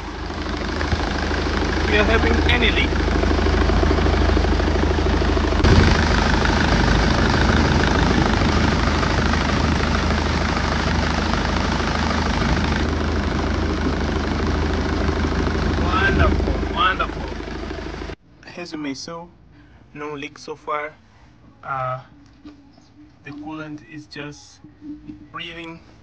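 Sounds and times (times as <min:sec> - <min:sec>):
diesel engine idling: 0:00.0 - 0:18.2.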